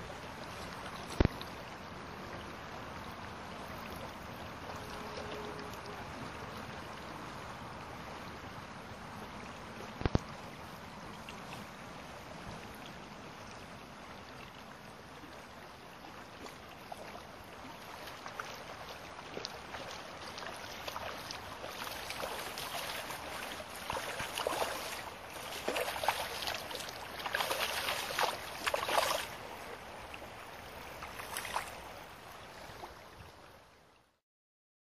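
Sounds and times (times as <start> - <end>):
river running over stones: 0.0 - 34.1
irregular splashes: 15.2 - 32.0.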